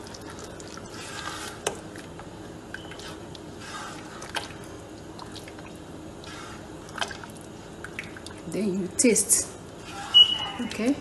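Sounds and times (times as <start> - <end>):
stew sloshing and squelching: 2.8 - 8.5.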